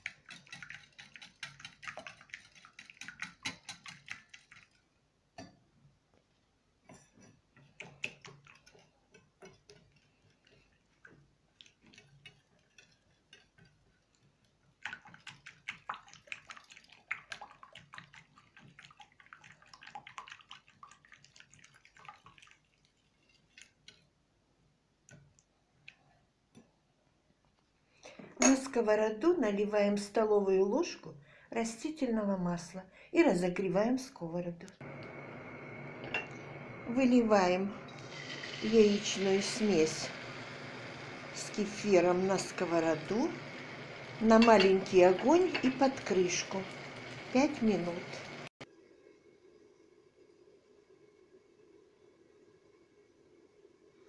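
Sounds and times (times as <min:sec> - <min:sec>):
whisk beating in a bowl: 0:00.0 - 0:04.8, 0:07.6 - 0:22.4, 0:37.4 - 0:48.4
whisk tapping bowl: 0:00.0 - 0:04.8, 0:07.5 - 0:22.4, 0:37.4 - 0:48.3.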